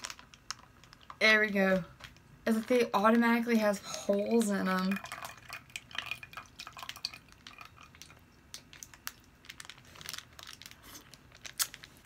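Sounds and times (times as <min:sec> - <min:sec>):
plastic wrapper crinkling: 0:00.0 - 0:03.3, 0:05.0 - 0:12.0.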